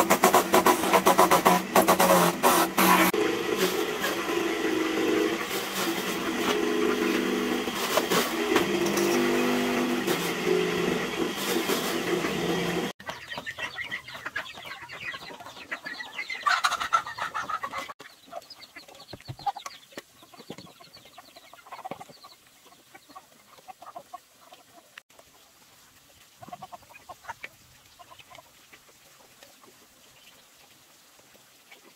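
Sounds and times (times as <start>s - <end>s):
chickens and ducks clucking: 11.3s - 30.7s, 31.6s - 31.9s.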